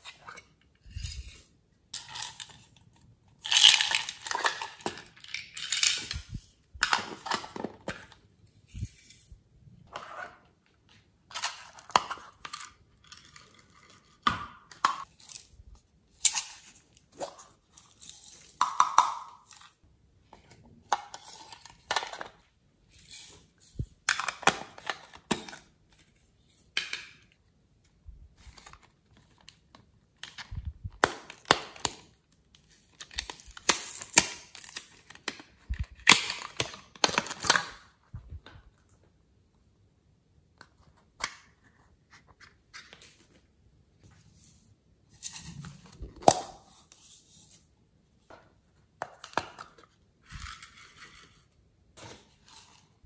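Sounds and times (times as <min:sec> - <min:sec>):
plastic containers tapped and shaken: 0:03.6 - 0:08.2.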